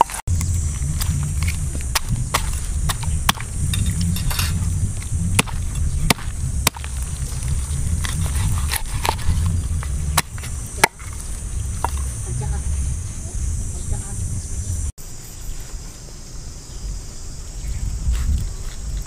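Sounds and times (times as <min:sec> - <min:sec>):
low rumble: 0:00.3 - 0:15.0.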